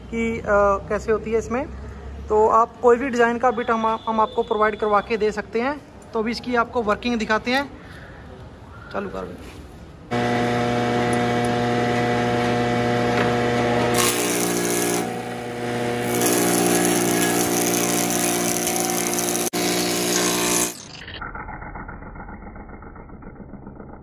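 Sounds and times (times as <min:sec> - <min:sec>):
planer motor humming: 0:10.1 - 0:21.1
cutter cutting wood: 0:10.1 - 0:21.2.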